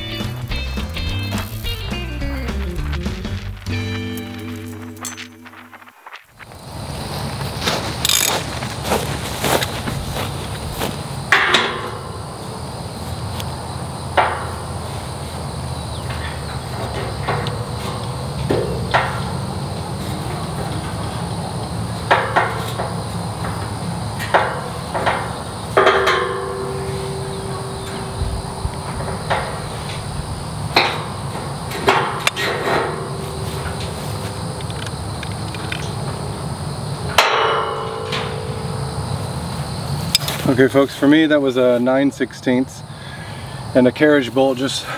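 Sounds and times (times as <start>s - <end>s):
steel pipe ringing: 4.0s - 5.8s, 11.3s - 13.0s, 16.0s - 40.4s
wrench clanking on metal gate post: 11.3s - 12.6s, 15.9s - 36.4s, 37.0s - 40.4s.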